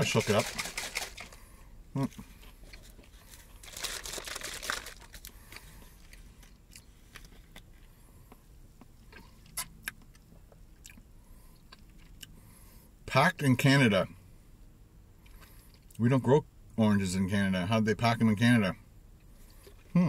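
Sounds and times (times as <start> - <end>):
plastic bottle rustling: 0.0 - 1.4, 2.8 - 5.3.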